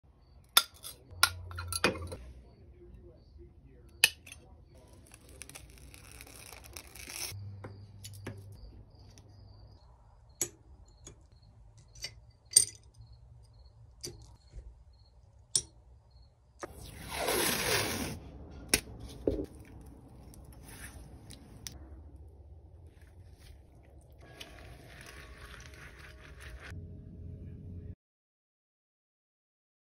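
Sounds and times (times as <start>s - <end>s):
glass pieces clinking: 0.6s - 2.2s, 11.8s - 13.1s.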